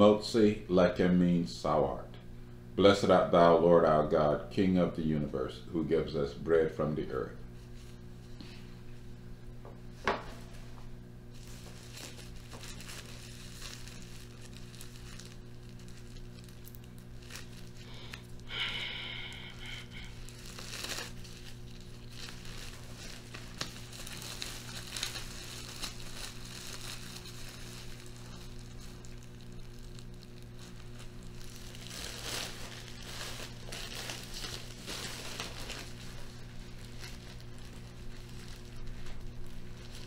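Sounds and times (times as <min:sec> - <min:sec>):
low hum: 0:07.2 - 0:40.0
bread rustling and crinkling: 0:09.9 - 0:40.0.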